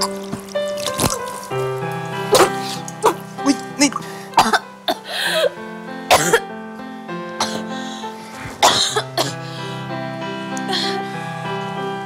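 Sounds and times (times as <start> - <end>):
background music: 0.0 - 12.0
woman coughing: 2.3 - 3.2, 3.8 - 5.0, 6.1 - 6.4, 8.6 - 9.4.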